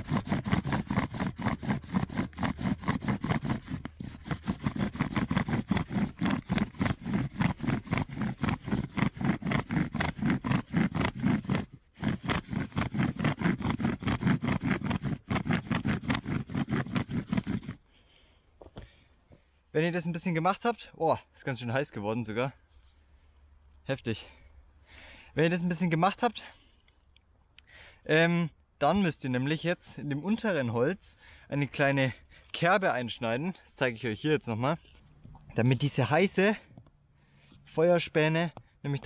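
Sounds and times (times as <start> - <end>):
bow drill wood grinding: 0.0 - 17.8.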